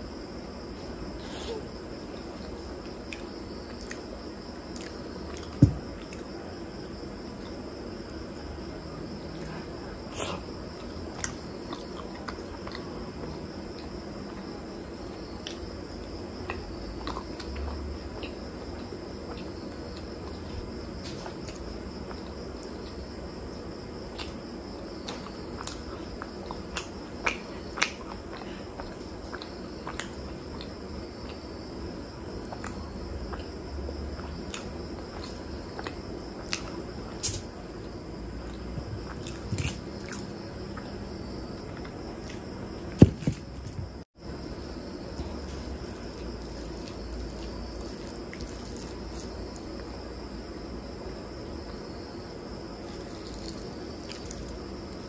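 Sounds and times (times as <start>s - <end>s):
steady high-pitched hum: 0.0s - 55.0s
dull thump: 5.5s - 6.0s, 43.0s - 44.0s.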